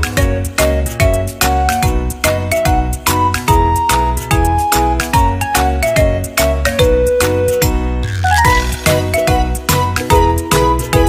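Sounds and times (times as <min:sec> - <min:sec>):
cheerful background music: 0:00.0 - 0:11.0.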